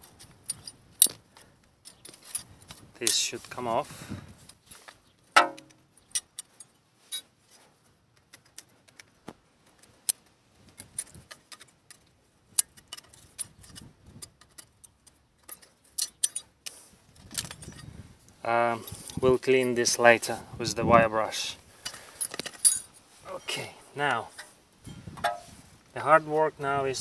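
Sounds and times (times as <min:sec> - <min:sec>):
metal clicks and clinks: 0:00.0 - 0:03.2, 0:10.8 - 0:17.9, 0:21.8 - 0:23.7.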